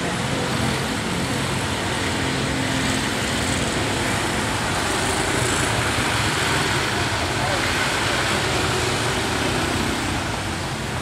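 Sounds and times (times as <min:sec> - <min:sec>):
train wheels on rails: 0:00.0 - 0:11.0.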